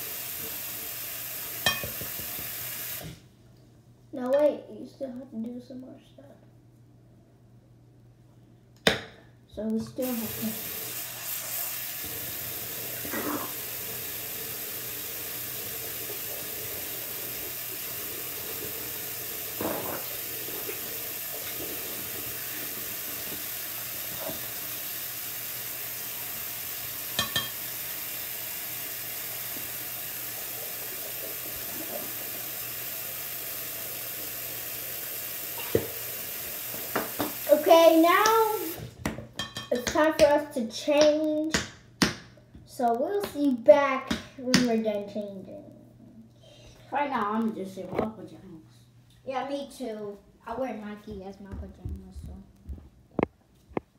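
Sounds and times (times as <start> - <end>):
tap running into basin: 1.4 - 3.1, 26.8 - 38.8.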